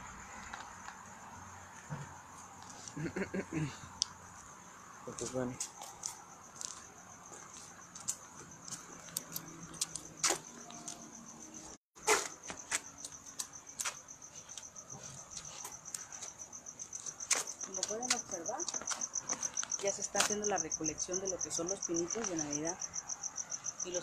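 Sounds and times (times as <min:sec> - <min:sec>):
crickets chirping: 0:00.0 - 0:24.0
handling clicks and footsteps: 0:05.1 - 0:11.2, 0:12.0 - 0:20.5.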